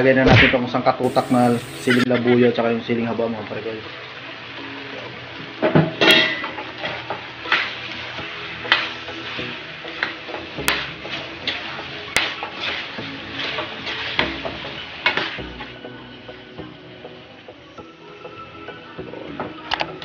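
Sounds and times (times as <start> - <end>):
metal spoon scraping wok: 1.0 - 2.1.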